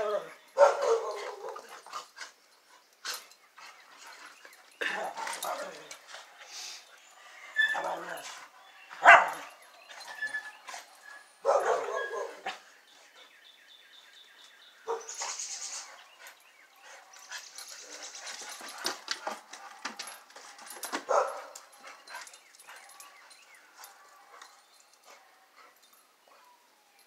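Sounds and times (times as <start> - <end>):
dog barking: 0.0 - 1.6, 9.0 - 9.4, 11.4 - 12.6, 21.0 - 21.6.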